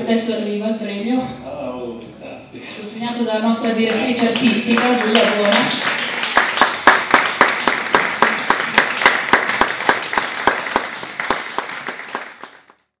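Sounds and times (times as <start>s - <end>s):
loud evenly timed claps: 3.4s - 12.8s
audience applauding: 3.6s - 12.8s.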